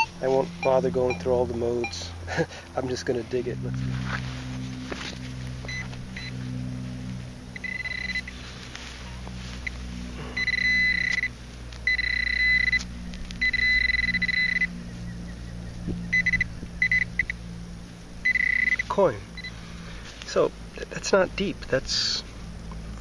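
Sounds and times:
pinpointer high beeps: 0.0s - 2.1s, 5.7s - 6.4s, 7.6s - 8.4s, 10.4s - 11.3s, 11.9s - 14.8s, 16.1s - 17.4s, 18.2s - 19.6s.

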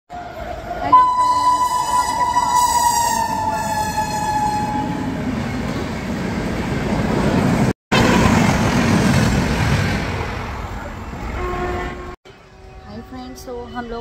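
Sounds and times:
train rumbling past: 0.1s - 14.0s
train horn: 0.8s - 5.2s, 11.3s - 13.1s.

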